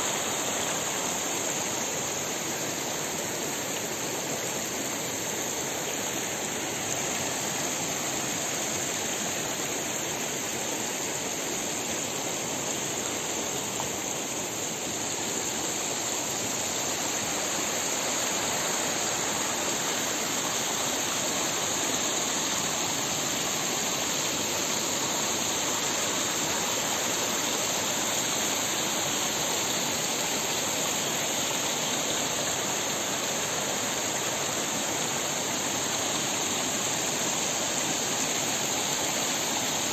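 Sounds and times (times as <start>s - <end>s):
stream running over rocks: 0.0s - 39.9s.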